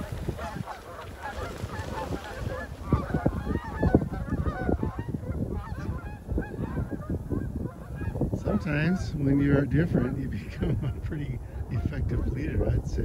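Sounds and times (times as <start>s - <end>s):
wings beating: 0.0s - 8.2s
geese honking: 0.0s - 12.4s.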